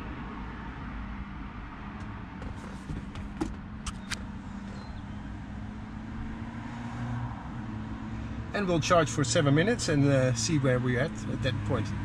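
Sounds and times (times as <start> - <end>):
low rumble inside car: 2.0 - 6.0.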